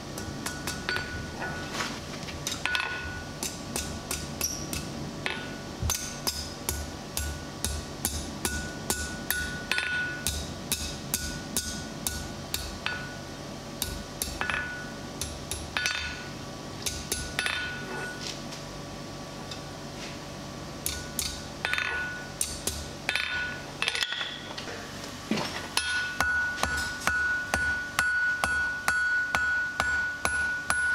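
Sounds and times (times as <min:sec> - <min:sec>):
hammer striking steel on anvil: 0:00.0 - 0:01.7, 0:02.5 - 0:18.2, 0:20.8 - 0:24.5, 0:25.8 - 0:30.9
anvil ringing: 0:20.9 - 0:22.4, 0:25.8 - 0:30.9.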